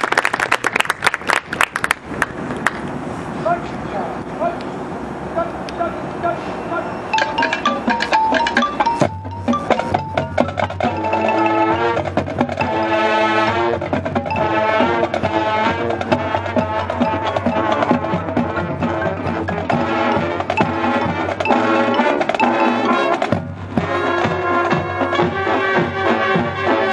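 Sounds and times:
marching percussion: 7.1 - 26.9
brass and woodwind chords: 7.2 - 26.9.

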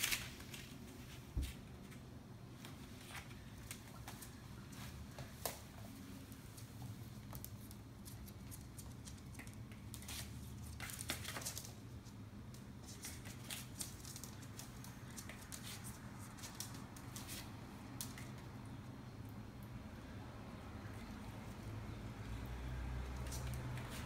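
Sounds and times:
faint low hum: 0.0 - 24.0
dog claws clicking on hardwood floor: 6.6 - 11.8, 12.5 - 17.4.

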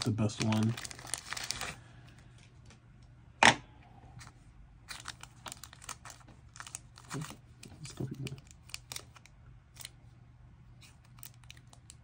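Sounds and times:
plastic packaging clicking and crinkling: 0.0 - 1.8, 4.9 - 10.0, 10.8 - 12.0.

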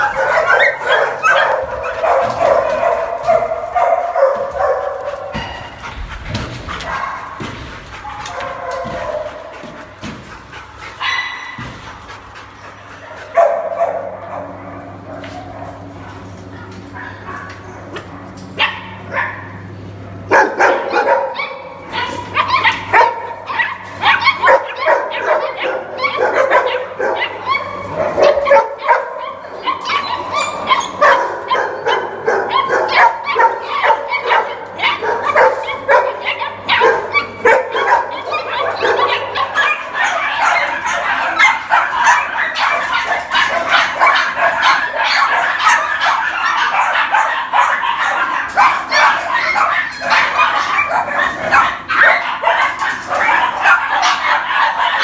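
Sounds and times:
dogs barking and yipping: 0.0 - 55.0.

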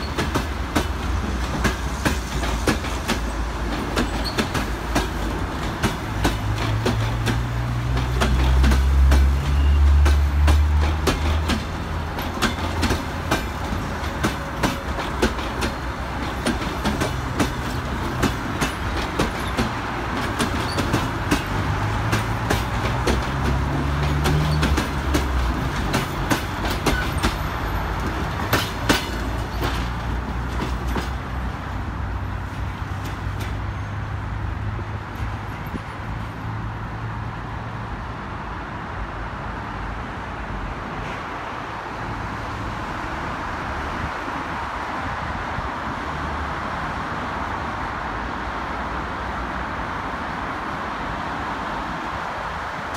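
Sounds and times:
train wheels clicking over rail joints: 0.0 - 31.6, 32.5 - 33.7.

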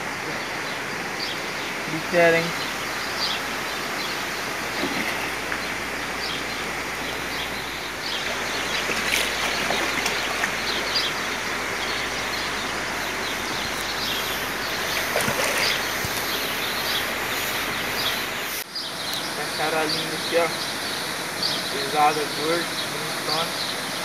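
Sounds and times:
fish thrashing and splashing water: 4.2 - 11.9, 14.3 - 16.6.

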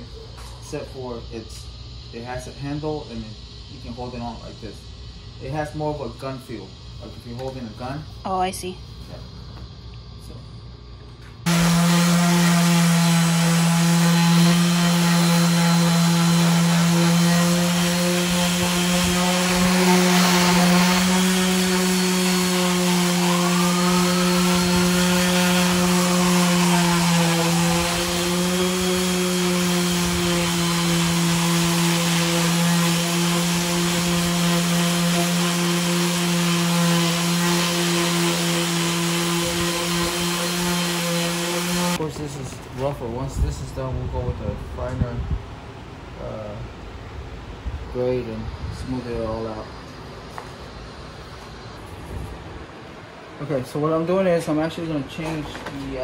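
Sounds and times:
orbital sander sanding wood: 11.4 - 42.1.

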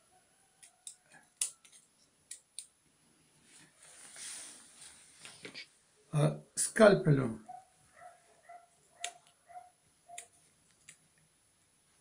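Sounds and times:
soft rustle of handling: 3.2 - 5.8.

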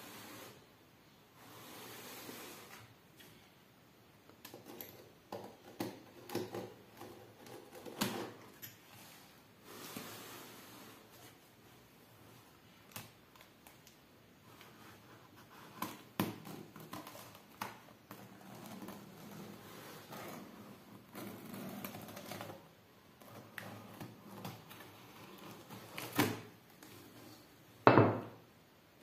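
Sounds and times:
knife scraping cardboard: 14.5 - 22.5.

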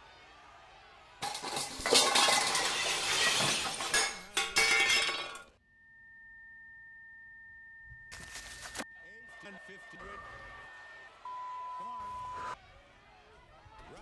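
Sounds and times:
loud clattering and clinking: 1.2 - 5.6
faint steady tone: 5.6 - 12.6.

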